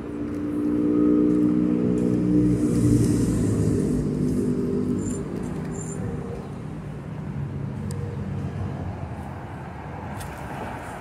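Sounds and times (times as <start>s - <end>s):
vehicle engine running: 0.0s - 7.5s
faint outdoor noise: 0.0s - 11.0s.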